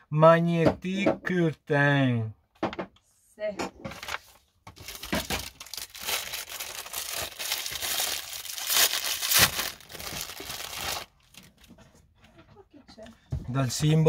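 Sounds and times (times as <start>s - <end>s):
plastic packaging crinkling and tearing: 3.9s - 11.7s.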